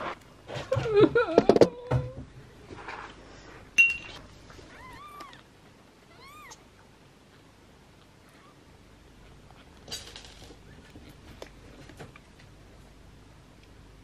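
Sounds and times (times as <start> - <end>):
kittens mewing: 4.6 - 6.7.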